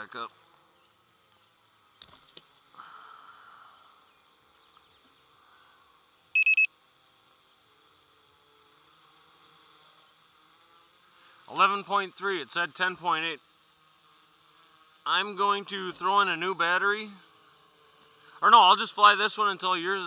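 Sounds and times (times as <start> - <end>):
faint high hum: 0.0 - 20.0
short electronic beeps: 6.4 - 6.7.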